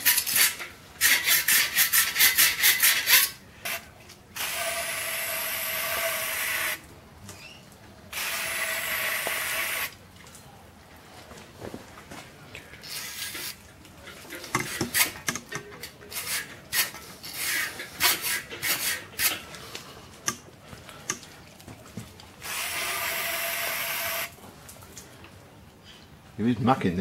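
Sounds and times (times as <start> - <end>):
brush scrubbing metal: 0.0 - 3.4.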